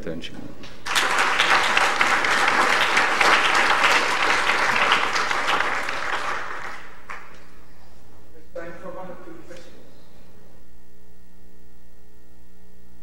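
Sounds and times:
audience applauding: 0.7 - 7.6.

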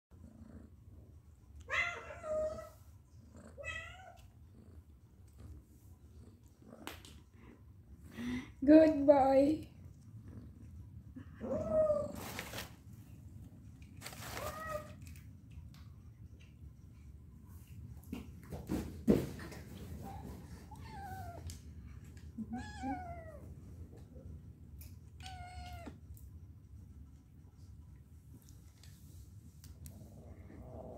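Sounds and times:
cat meowing: 25.2 - 26.0.

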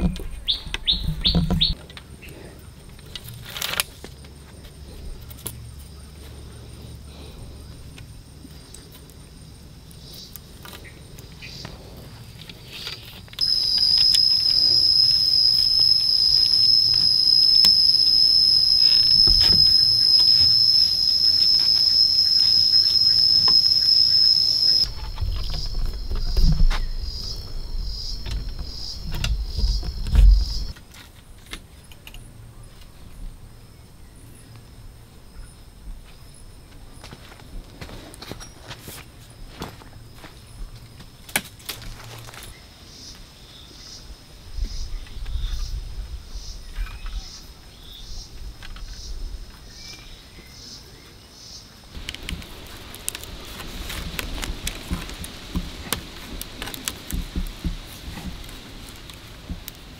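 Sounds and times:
cicada buzzing: 13.4 - 30.7, 52.0 - 59.9.

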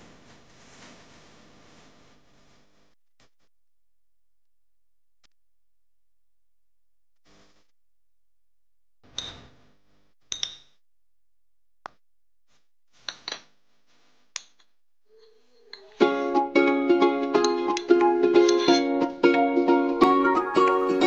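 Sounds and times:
plucked-string background music: 15.9 - 21.0
crockery clinks: 18.5 - 18.9.

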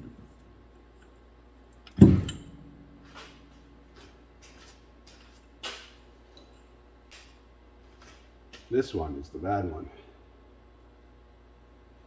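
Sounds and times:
heavy metal clunk with ring: 1.9 - 3.6.

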